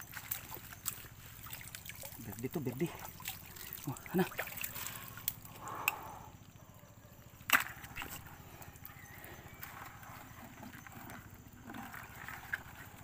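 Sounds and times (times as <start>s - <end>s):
crab splashing in water: 0.0s - 5.5s.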